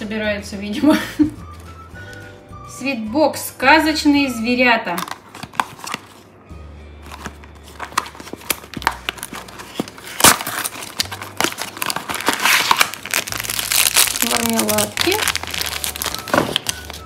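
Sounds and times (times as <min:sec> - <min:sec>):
plastic packet crinkling: 0:07.1 - 0:17.0
cardboard box tearing: 0:07.2 - 0:17.0.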